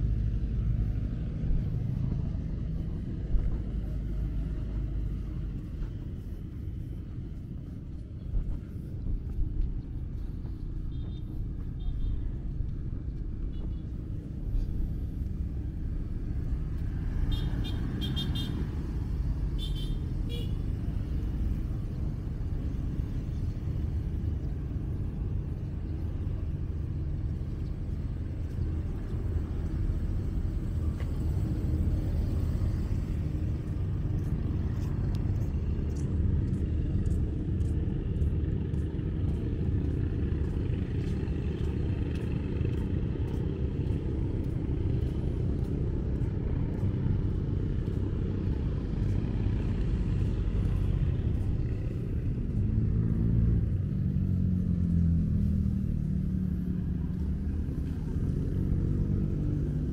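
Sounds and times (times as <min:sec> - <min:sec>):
traffic rumble: 0:00.0 - 0:59.9.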